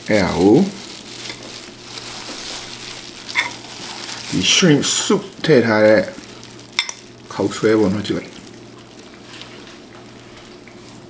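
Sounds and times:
plastic gloves crinkling: 0.0 - 11.0
fork stirring food in glass bowl: 3.3 - 3.6.

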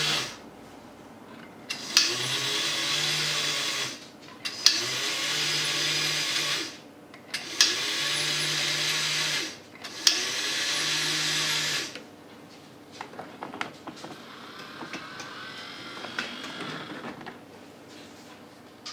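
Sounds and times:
electric drive whirring: 0.0 - 0.4, 1.7 - 6.8, 7.4 - 12.1, 13.0 - 17.5.

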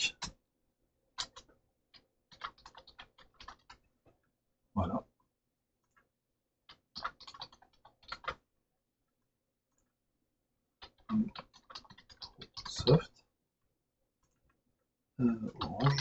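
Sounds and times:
computer keyboard typing: 2.3 - 3.8, 6.7 - 8.4, 10.8 - 13.0.

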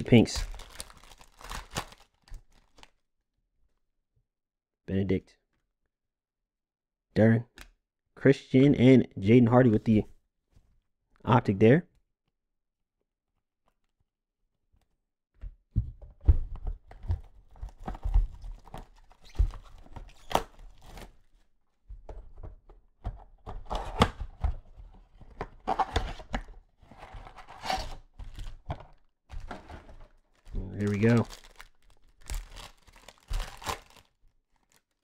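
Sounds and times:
wrappers tearing and rustling: 0.0 - 3.0, 29.4 - 35.0.

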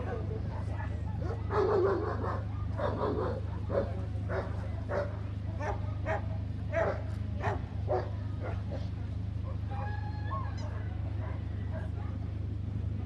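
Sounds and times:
steady low hum: 0.0 - 13.0
dog barking: 1.2 - 8.9.

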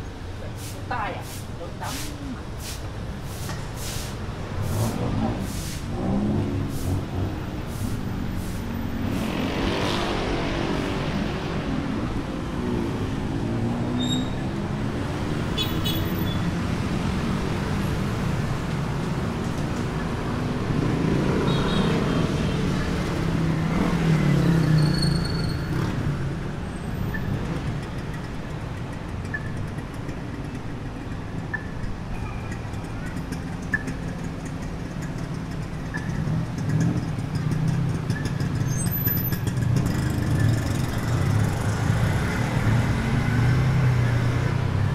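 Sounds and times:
steady low traffic rumble: 0.0 - 21.2
vehicles passing close: 0.0 - 44.9.

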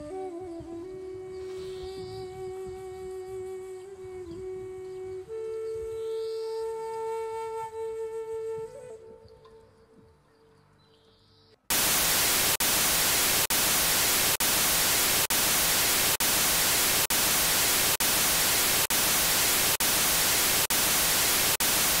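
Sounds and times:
tv static hiss: 11.7 - 22.0.

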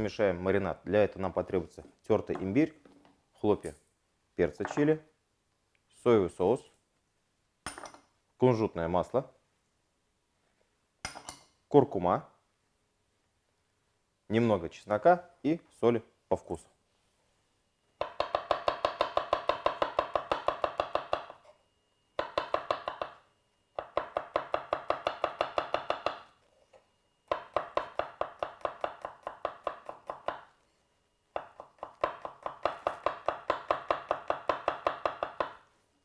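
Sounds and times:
knife chopping on wooden board: 18.0 - 21.4, 23.8 - 26.3, 27.3 - 30.5, 31.4 - 35.6.

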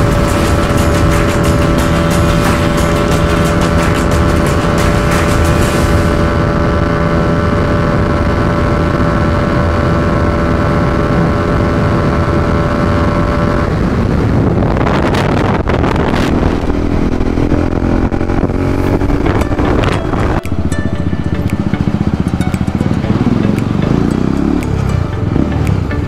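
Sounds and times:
motorcycle engine running: 0.0 - 26.0
road noise: 0.0 - 26.0
wind on microphone: 13.8 - 20.4.

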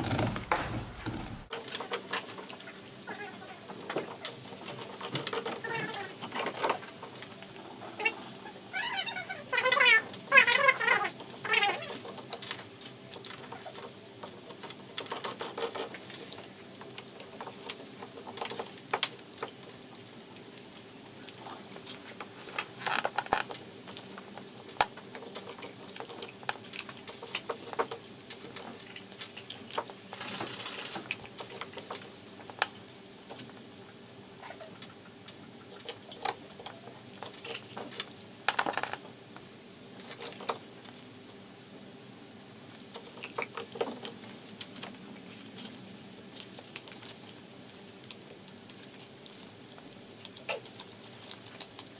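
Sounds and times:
faint steady hum: 0.0 - 15.0
dog crunching a bone: 46.2 - 51.9.

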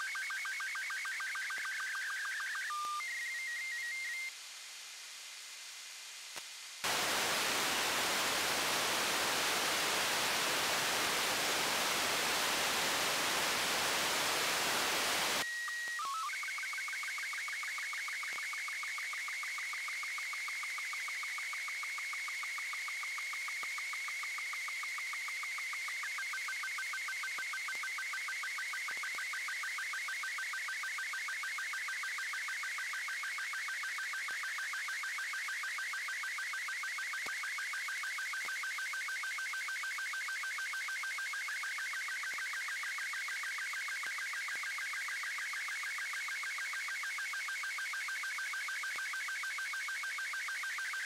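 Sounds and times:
radio hiss: 3.3 - 15.4.

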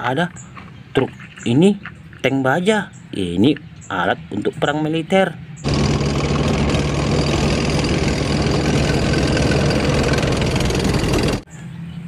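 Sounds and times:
tank tracks: 5.6 - 11.4
tank engine running: 5.6 - 11.5.

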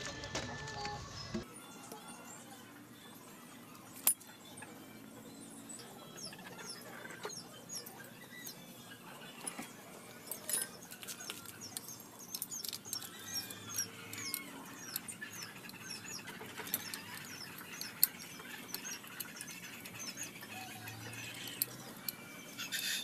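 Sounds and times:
wrench clicking on metal: 10.4 - 22.2.

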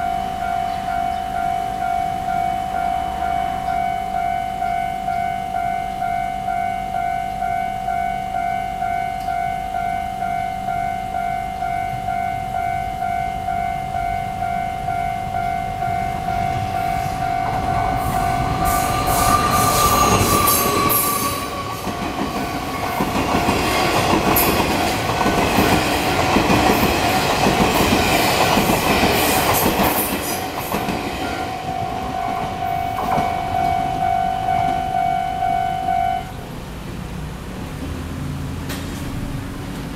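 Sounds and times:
level crossing bell ringing: 0.0 - 18.7, 30.4 - 36.4
train wheels clattering: 16.3 - 34.9.

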